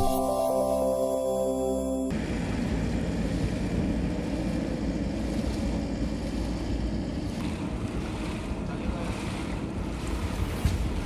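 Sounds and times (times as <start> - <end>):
floodwater rushing: 2.2 - 11.0.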